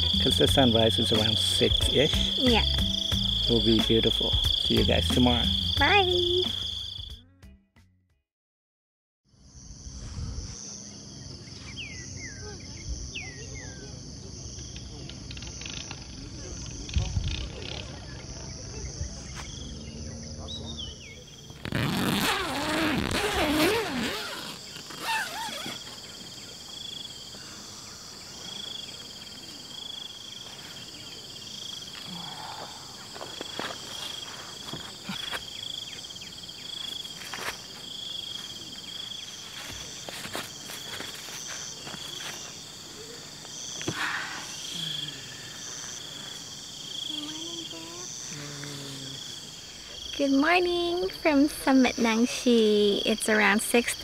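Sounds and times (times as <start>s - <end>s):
voices: 0.0s - 2.8s, 3.5s - 6.6s, 42.8s - 54.0s
insects chirping: 0.0s - 7.2s, 9.3s - 54.0s.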